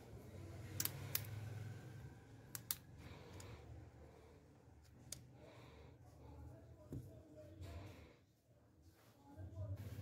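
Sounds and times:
sharp plastic clicks: 2.5 - 3.5.

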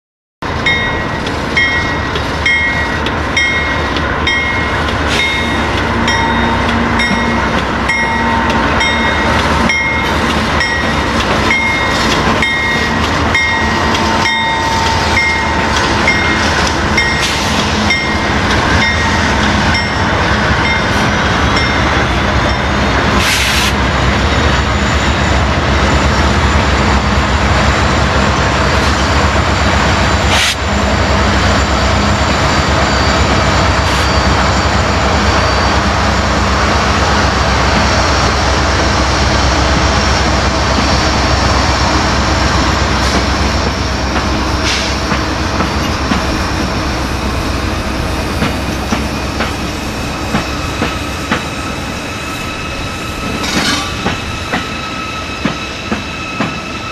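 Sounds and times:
diesel locomotives rumbling: 0.4 - 56.9.

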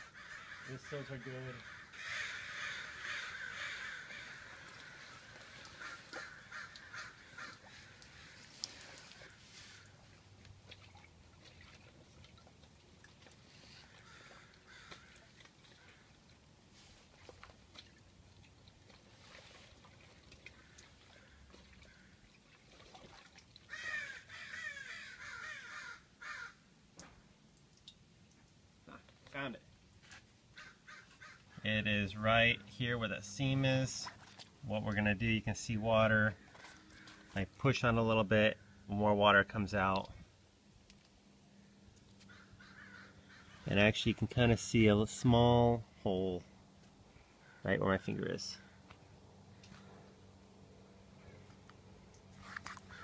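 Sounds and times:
bird harsh calls: 0.0 - 9.9, 13.9 - 15.2, 23.7 - 26.6, 30.6 - 31.7, 42.3 - 43.7
crow cawing: 0.0 - 9.9, 13.8 - 16.1, 20.6 - 22.2, 23.7 - 26.6, 30.6 - 31.6, 36.4 - 37.4, 42.2 - 43.7, 47.4 - 47.7.

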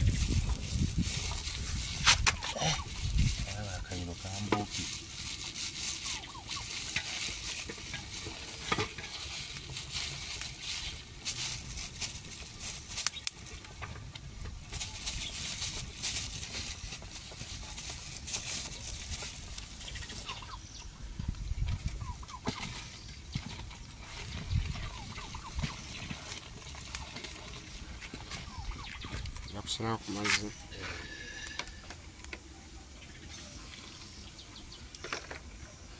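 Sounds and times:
plastic bag rustling: 0.0 - 32.2
wood fire crackling: 0.0 - 35.9
turkey gobbling: 2.3 - 3.1, 5.9 - 7.6, 19.9 - 20.8, 22.0 - 22.8, 24.8 - 26.0.

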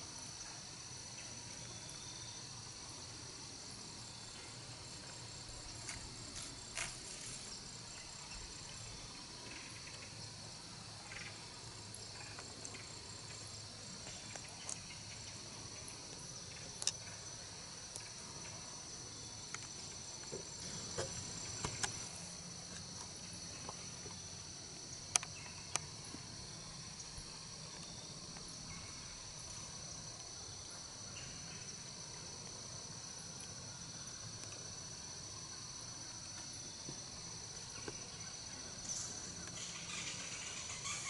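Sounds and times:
crickets and insects chorus: 0.0 - 41.0
light ticks and rustles: 5.0 - 8.8.

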